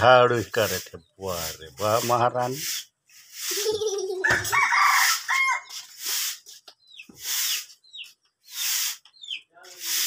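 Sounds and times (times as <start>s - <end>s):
broom sweeping concrete: 0.0s - 10.0s
rooster crowing: 4.2s - 5.7s.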